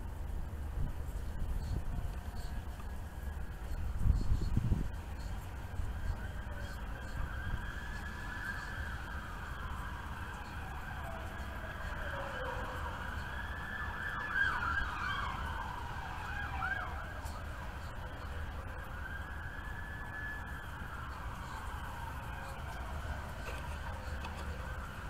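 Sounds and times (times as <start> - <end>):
steady low rumble: 0.0 - 13.8
sirens wailing and yelping: 0.1 - 25.0.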